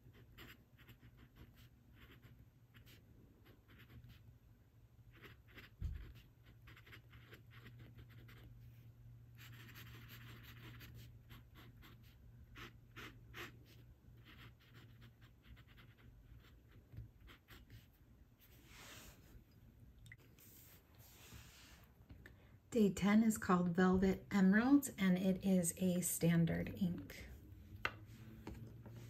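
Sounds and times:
pen scratching on paper: 0.0s - 4.2s, 5.1s - 8.5s, 9.4s - 17.9s.

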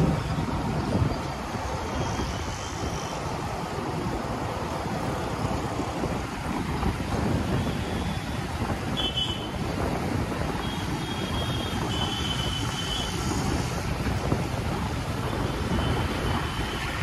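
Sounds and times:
road and traffic noise: 0.0s - 17.0s.

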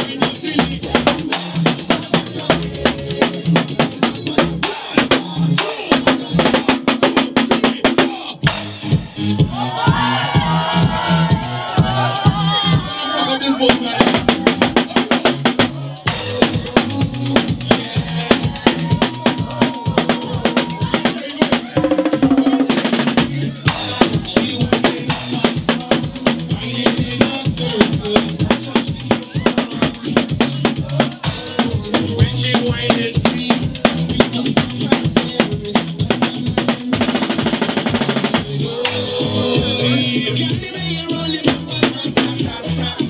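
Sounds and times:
drum kit played fast: 0.0s - 13.0s, 13.6s - 43.0s
dance music: 0.0s - 43.0s.

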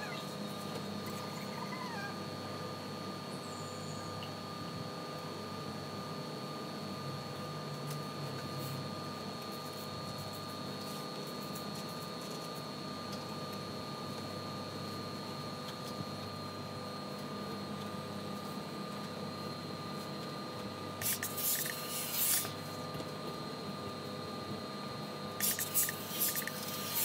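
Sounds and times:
ironing station hum: 13.1s - 27.0s
steam hissing: 21.0s - 22.5s, 25.4s - 27.0s.

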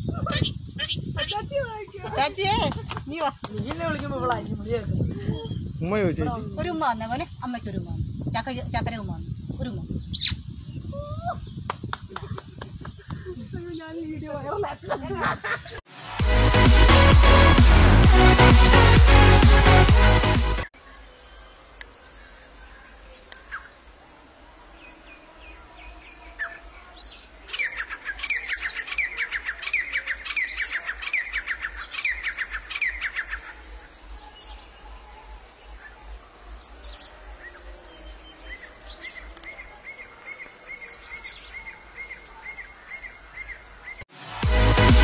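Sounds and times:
francolin calling: 24.8s - 44.0s.

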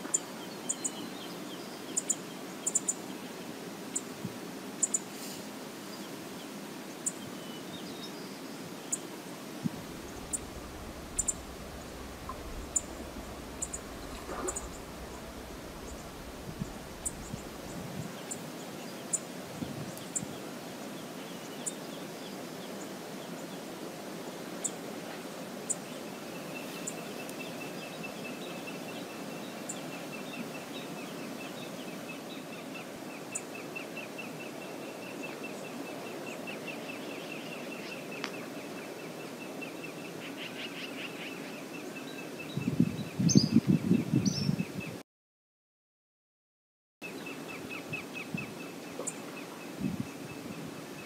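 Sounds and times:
outdoor background hiss: 0.0s - 45.0s, 47.0s - 51.0s
bird's high rapid trill: 9.9s - 17.7s
faint sharp ticks: 10.0s - 17.6s.

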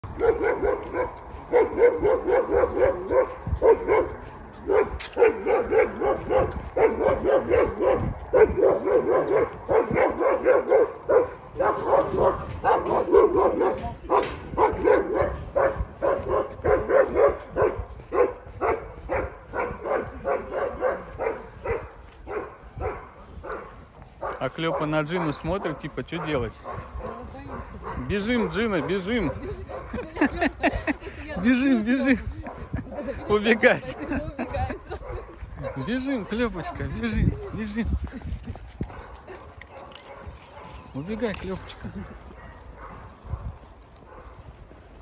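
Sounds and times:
dog barking angrily: 0.1s - 30.0s.

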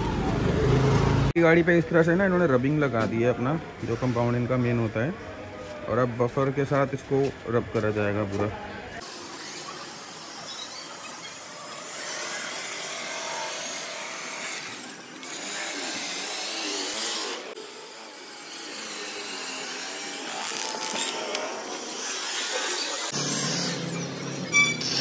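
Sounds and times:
electric polisher buffing: 9.0s - 25.0s.

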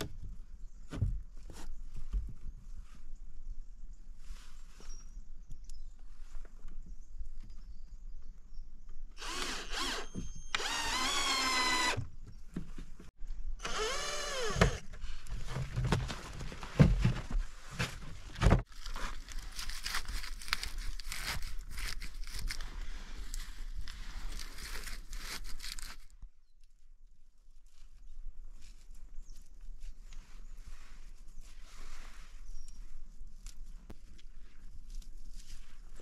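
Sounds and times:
cordless drill whirring: 9.2s - 12.0s, 13.6s - 14.8s.

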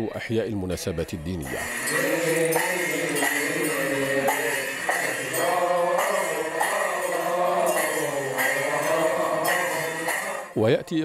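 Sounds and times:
percussion struck at steady beat: 1.5s - 10.7s
several voices chanting a hymn: 1.5s - 11.0s.

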